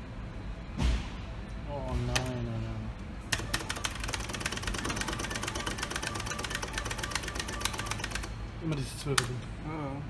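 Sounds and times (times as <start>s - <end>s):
slot machine ticking: 3.3s - 8.4s.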